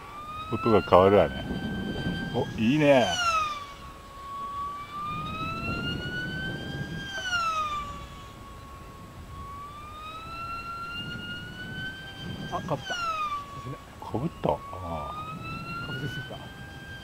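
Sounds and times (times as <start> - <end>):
model airplane motor whining: 0.0 - 17.0.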